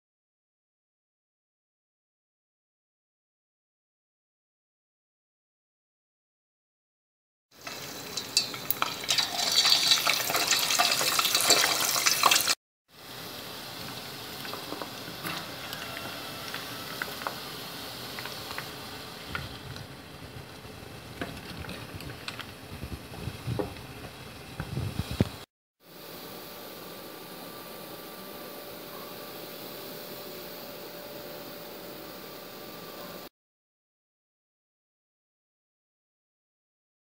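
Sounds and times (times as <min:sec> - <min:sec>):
pork deep-frying in hot oil: 0:07.5 - 0:33.3.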